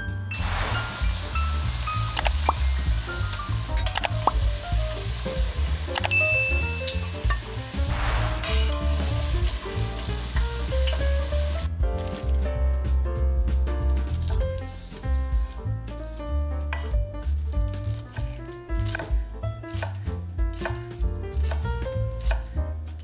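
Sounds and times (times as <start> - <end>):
potato strips sizzling in oil: 0.4 - 11.7.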